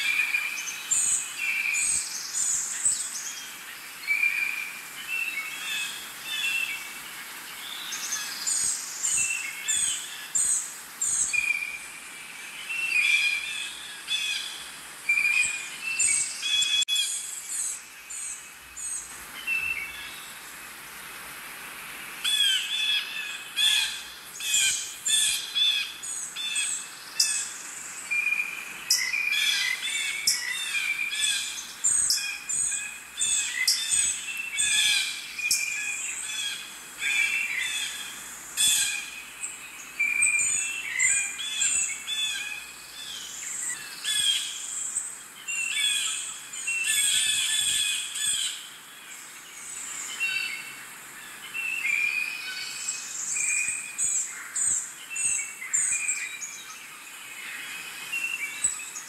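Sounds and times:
birds chirping and calling: 0:22.2 - 0:48.7.

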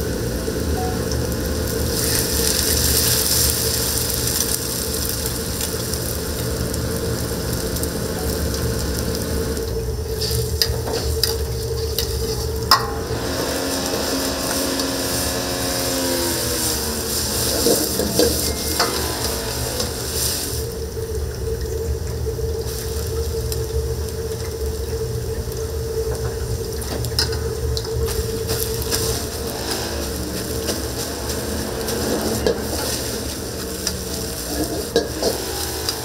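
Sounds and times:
rice sizzling in a wok: 0:00.0 - 0:36.0
steady hum: 0:00.0 - 0:36.0
utensil clanking against wok: 0:09.6 - 0:20.8, 0:26.1 - 0:36.0.

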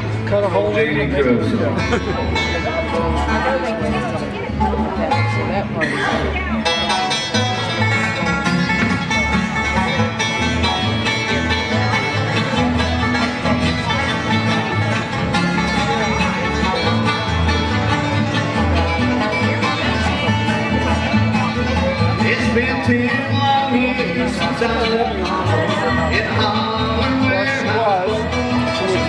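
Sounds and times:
bluegrass band playing: 0:00.0 - 0:29.0
upright bass thumping: 0:06.6 - 0:29.0.

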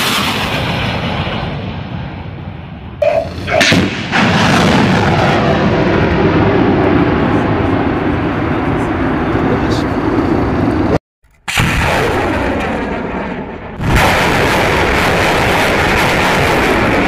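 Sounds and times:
rocket launch blast: 0:03.0 - 0:07.2, 0:11.4 - 0:17.0.

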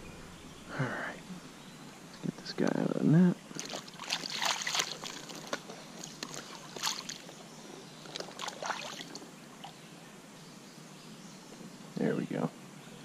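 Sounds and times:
stream running: 0:00.0 - 0:10.0
water splashing in landing net: 0:03.5 - 0:07.4, 0:08.1 - 0:09.2.

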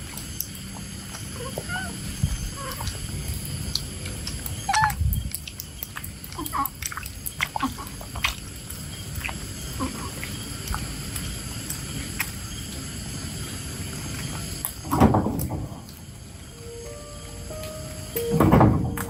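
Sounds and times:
baby monkey squeaky calls: 0:01.4 - 0:02.9
high-pitched hum: 0:16.5 - 0:19.0.

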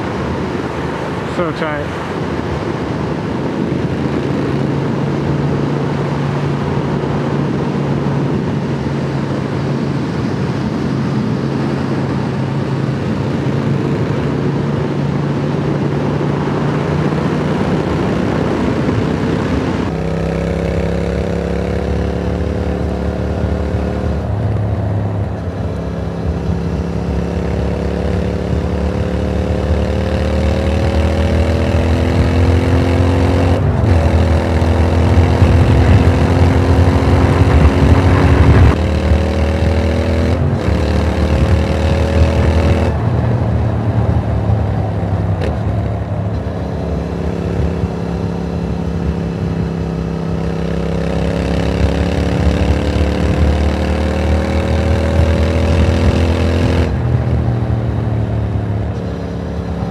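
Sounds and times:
motorcycle engine running: 0:00.0 - 0:59.9
wind rush: 0:00.0 - 0:59.9.

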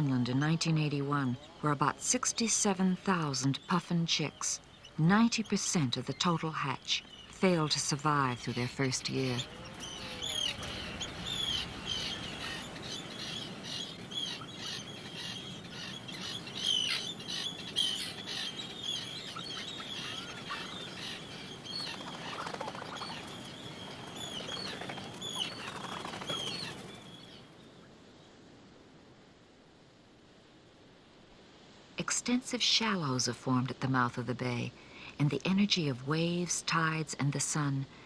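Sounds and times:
seabirds calling: 0:00.0 - 0:27.9
wingbeats of birds: 0:08.4 - 0:27.5.

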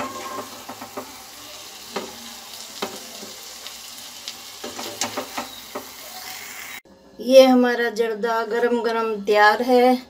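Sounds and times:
spatula scraping in pan: 0:00.0 - 0:03.8, 0:04.4 - 0:06.8
pan sizzling: 0:00.0 - 0:06.8.

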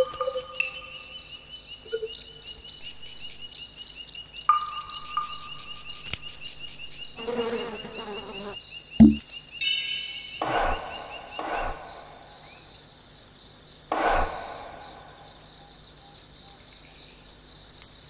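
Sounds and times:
insects trilling: 0:00.0 - 0:08.8
insect chirps: 0:00.0 - 0:11.4
low thump: 0:09.0 - 0:09.2.

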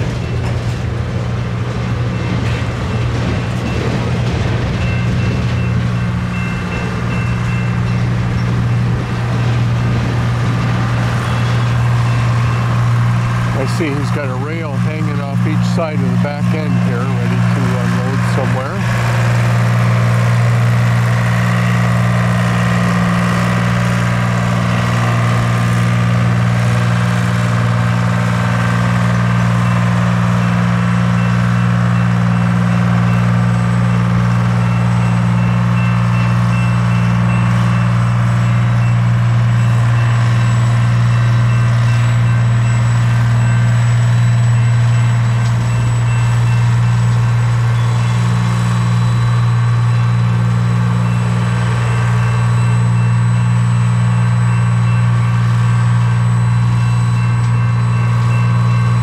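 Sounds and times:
diesel train engine humming: 0:00.0 - 0:59.0
faint high beeping: 0:33.9 - 0:59.0.

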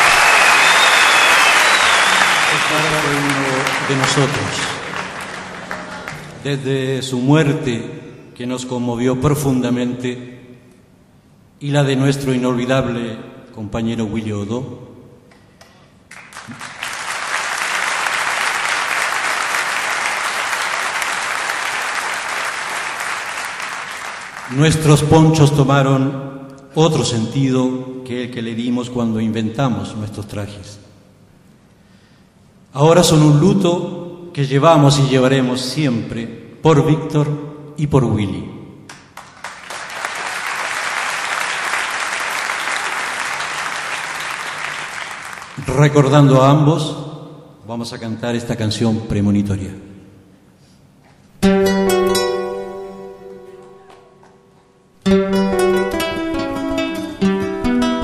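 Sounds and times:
audience applause: 0:00.0 - 0:06.4, 0:16.1 - 0:24.9, 0:38.9 - 0:45.8, 0:53.6 - 0:54.3
band playing: 0:01.7 - 0:06.6.

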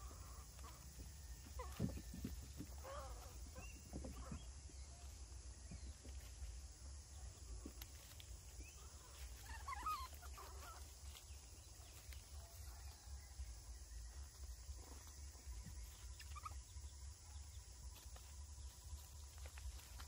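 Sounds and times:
baby monkey squeaking: 0:09.4 - 0:10.8, 0:16.2 - 0:16.6.

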